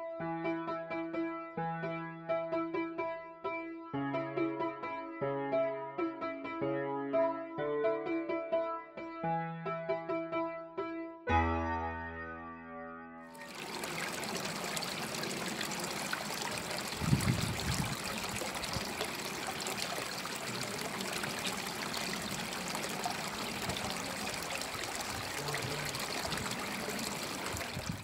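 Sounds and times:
water trickling and splashing: 13.3 - 28.0.

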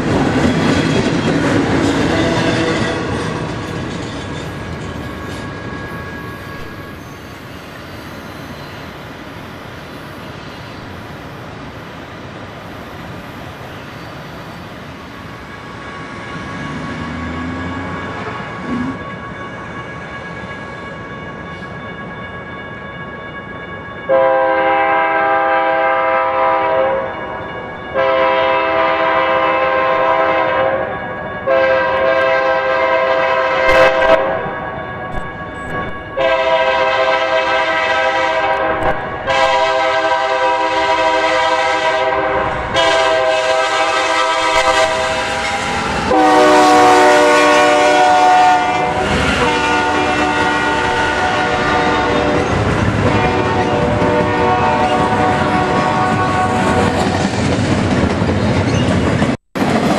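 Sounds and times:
locomotive air horn blasts: 24.1 - 27.1, 27.9 - 30.9, 31.5 - 34.5, 36.2 - 56.8.

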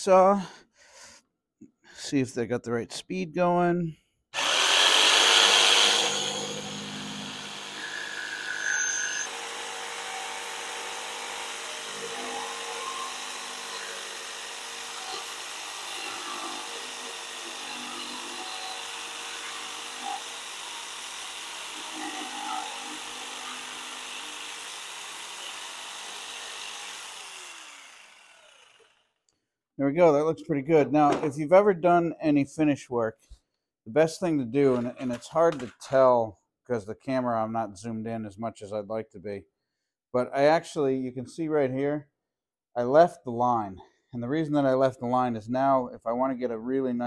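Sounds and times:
jigsaw cutting wood: 4.4 - 29.2.

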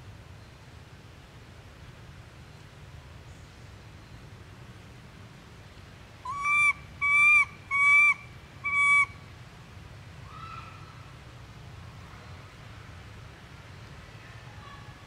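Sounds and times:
macaque high-pitched coo calls: 6.3 - 9.1.

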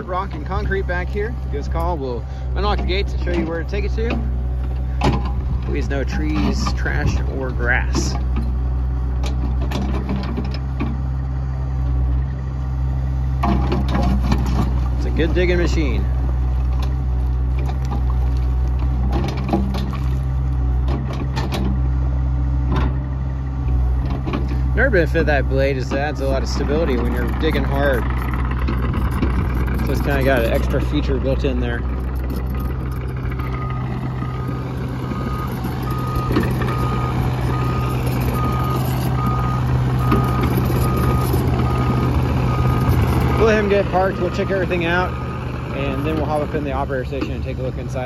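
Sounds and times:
diesel engine running: 0.0 - 48.0
excavator tracks moving: 0.0 - 48.0
hydraulic whine: 0.0 - 48.0
excavator travel alarm beeping: 24.6 - 47.4
rubble clacking: 25.8 - 43.6.

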